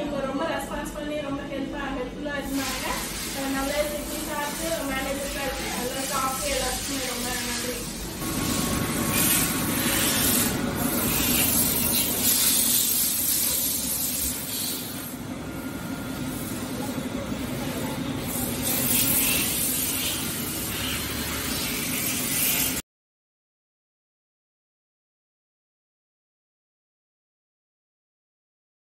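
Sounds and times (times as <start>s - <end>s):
fan hiss: 2.3s - 22.8s
machines low hum: 3.6s - 12.8s, 14.0s - 21.4s.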